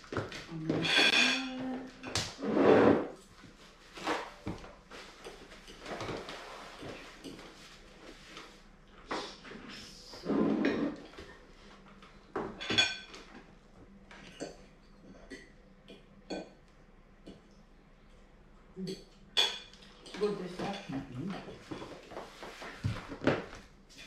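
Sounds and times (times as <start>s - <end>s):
forks and plates clinking: 0.8s - 1.6s.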